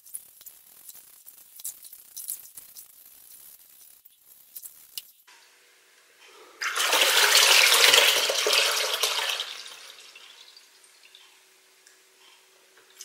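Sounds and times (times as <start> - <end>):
water pouring into bucket: 6.6 - 11.2.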